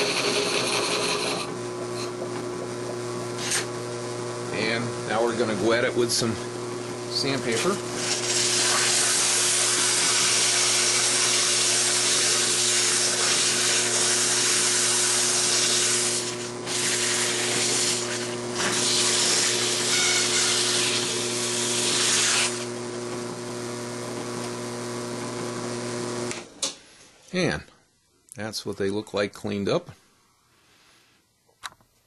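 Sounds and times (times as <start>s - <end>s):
power tool motor hum: 0.0s - 2.2s, 7.3s - 26.5s.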